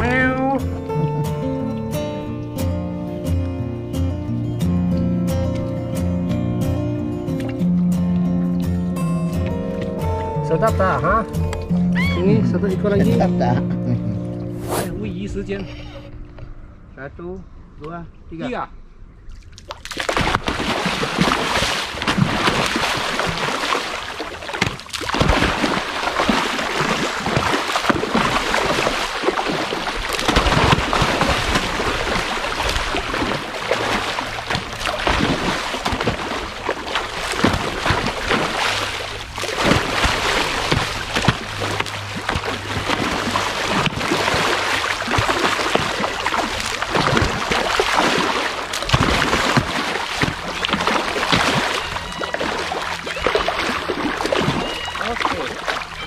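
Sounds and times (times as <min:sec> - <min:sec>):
fish splashing at water surface: 0:19.4 - 0:56.0.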